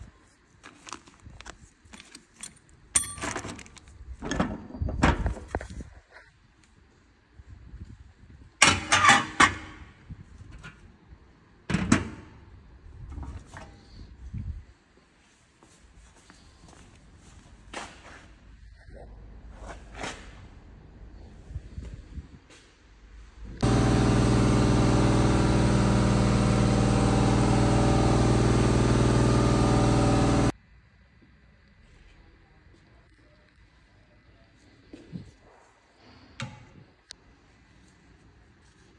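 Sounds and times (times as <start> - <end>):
steady machine drone: 23.6 - 30.5.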